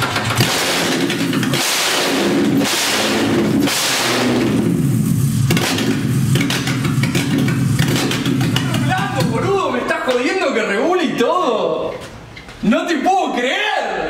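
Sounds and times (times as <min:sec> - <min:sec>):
car engine idling: 0:00.0 - 0:09.9.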